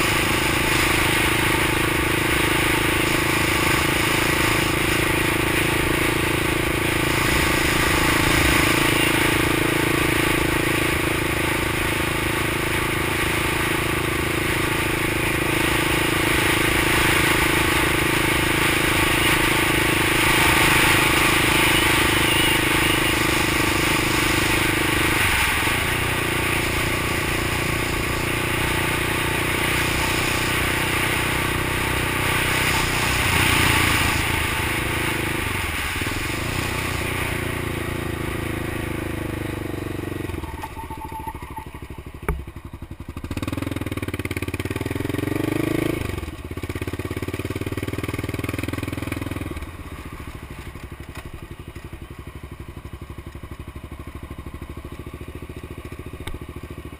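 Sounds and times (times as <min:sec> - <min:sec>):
single-cylinder engine running: 0:00.0 - 0:40.6.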